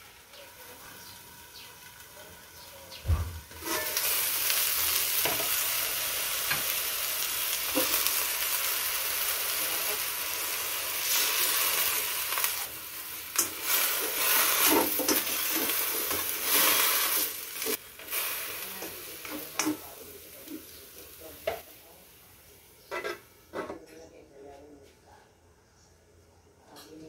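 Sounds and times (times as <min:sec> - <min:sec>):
vegetables sizzling in a wok: 0:00.0 - 0:23.4
spatula scraping a pan: 0:03.6 - 0:04.2, 0:22.9 - 0:23.7.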